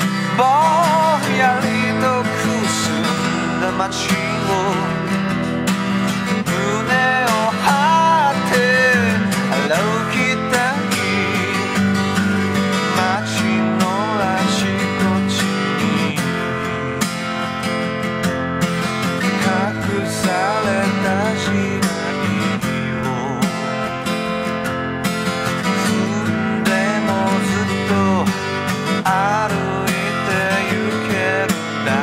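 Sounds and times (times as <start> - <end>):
rock song with acoustic guitar: 0.0 - 32.0.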